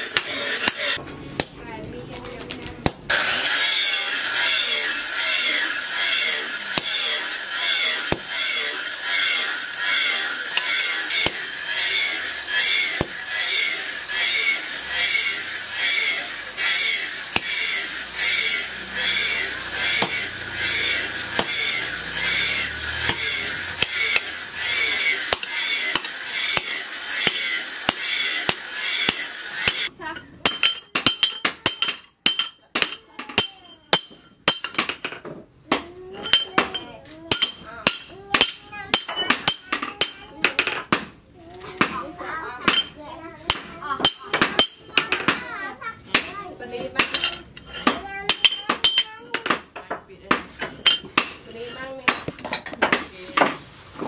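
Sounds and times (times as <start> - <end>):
hand tool rasping on steel: 3.4 - 34.8, 46.9 - 49.4.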